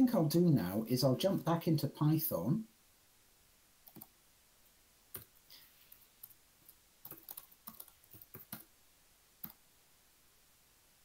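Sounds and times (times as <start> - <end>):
faint keyboard typing: 3.8 - 4.2, 5.1 - 8.7, 9.4 - 9.6.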